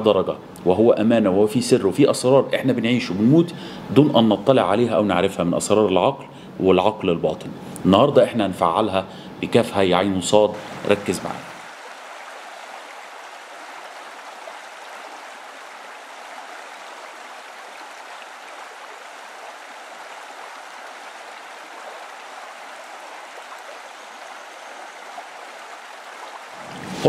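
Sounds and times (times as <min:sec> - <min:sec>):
running water rushing: 0:09.7 - 0:27.0.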